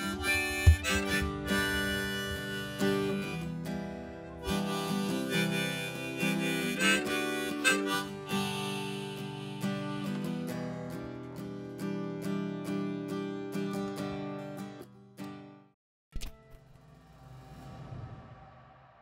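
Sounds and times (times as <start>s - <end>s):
harmonica melody: 0.0s - 11.1s
acoustic guitar strumming: 0.0s - 15.6s.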